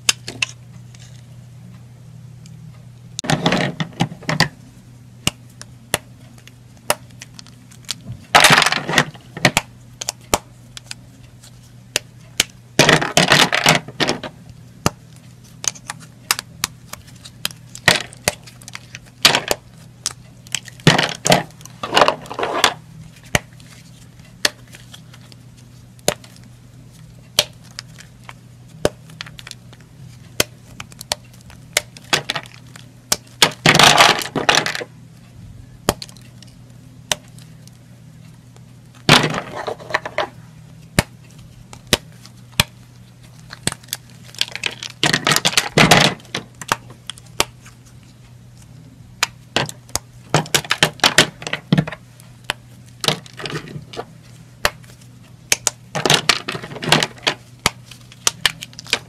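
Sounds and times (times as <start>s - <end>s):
faint low hum: 0.0s - 59.0s
soap snapping and crunching: 14.8s - 21.8s, 35.8s - 36.5s, 41.0s - 47.8s, 54.6s - 59.0s.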